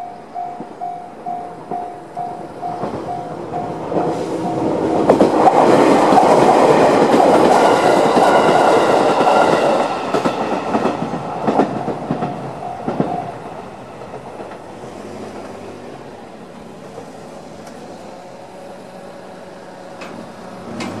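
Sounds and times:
level crossing warning bell: 0:00.0 - 0:05.4, 0:12.1 - 0:13.8
electric train passing: 0:00.0 - 0:21.0
train wheels clattering over rail joints: 0:20.0 - 0:21.0.

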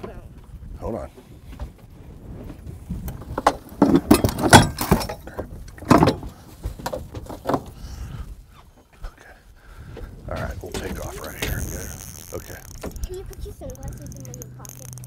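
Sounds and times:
low wind rumble: 0:00.0 - 0:06.3, 0:09.5 - 0:15.0
gear clattering and knocking: 0:03.1 - 0:06.2, 0:10.6 - 0:15.0.

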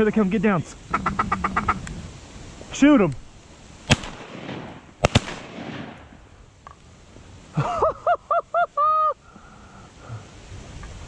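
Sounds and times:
duck quacks: 0:00.9 - 0:01.8
shotgun shots echoing: 0:03.9 - 0:06.3.

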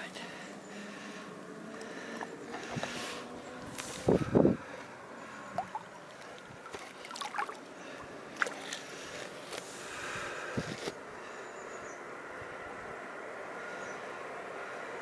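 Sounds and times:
water lapping: 0:00.3 - 0:10.1
small water splashes: 0:05.5 - 0:09.0.

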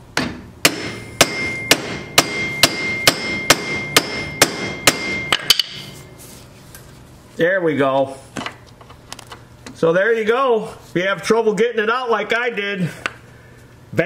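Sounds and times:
hammer tapping: 0:00.2 - 0:05.9
hammer striking metal wrench: 0:00.2 - 0:06.0.

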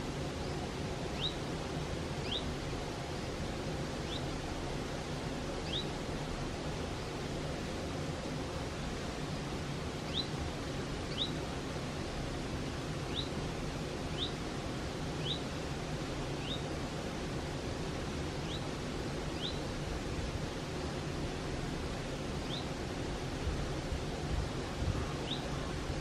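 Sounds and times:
bird chirping: 0:01.2 - 0:01.4, 0:02.2 - 0:02.5, 0:04.0 - 0:04.2, 0:05.6 - 0:05.9, 0:10.1 - 0:10.3, 0:11.1 - 0:11.4, 0:13.1 - 0:13.3, 0:14.1 - 0:14.4, 0:15.2 - 0:15.4, 0:16.4 - 0:16.6, 0:18.4 - 0:18.7, 0:19.4 - 0:19.6, 0:22.4 - 0:22.7, 0:25.2 - 0:25.7.

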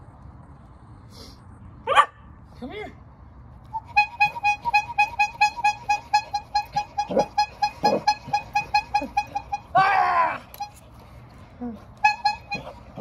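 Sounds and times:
bicycle horn honking: 0:03.8 - 0:09.8, 0:12.0 - 0:13.0.

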